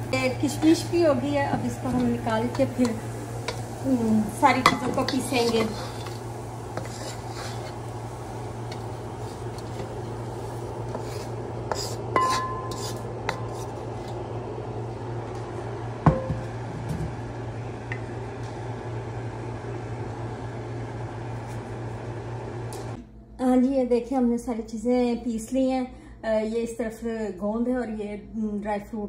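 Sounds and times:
steady low hum: 0.0 - 29.0
kitchenware clinking and scraping: 4.6 - 6.2, 11.0 - 14.2.

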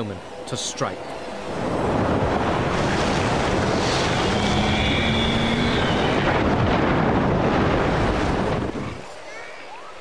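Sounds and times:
surf crashing on rocky shore: 1.5 - 9.1.

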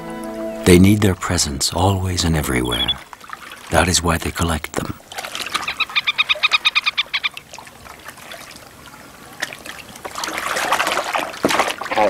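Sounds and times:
bird calling: 0.0 - 3.1, 5.4 - 7.4
water trickling and lapping: 0.0 - 12.0.

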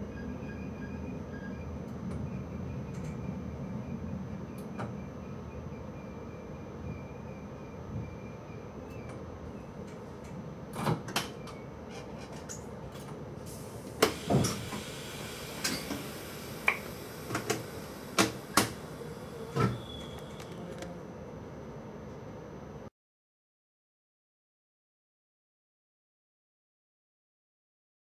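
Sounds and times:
faint high whine: 15.0 - 21.0.

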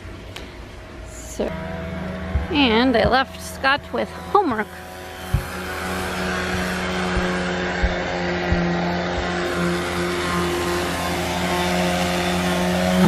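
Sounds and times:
electric sander humming: 1.4 - 13.0
soft thumps: 2.3 - 4.2, 5.3 - 9.6.

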